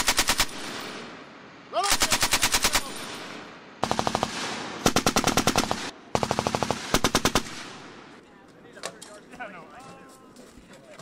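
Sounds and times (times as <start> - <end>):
machine gun firing bursts: 0.0 - 1.1, 1.9 - 7.9.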